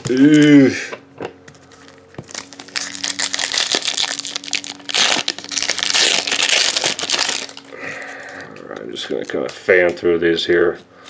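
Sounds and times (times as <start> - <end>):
foil wrapper crinkling and tearing: 1.8 - 9.5.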